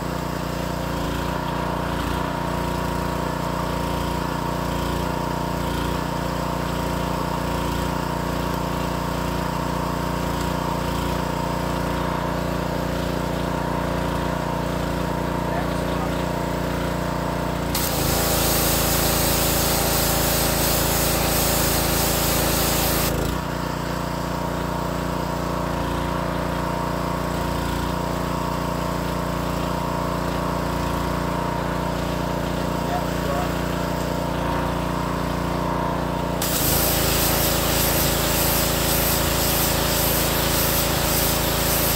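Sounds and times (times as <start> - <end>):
pressure washer engine running: 0.0 - 41.9
high-pressure water spray hissing: 17.6 - 24.4, 32.0 - 41.9.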